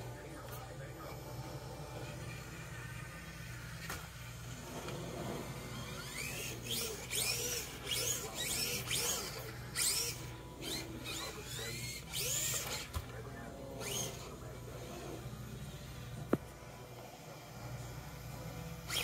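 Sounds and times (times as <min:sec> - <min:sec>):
toy car motor whining: 0:01.0 - 0:15.9, 0:17.7 - 0:19.0.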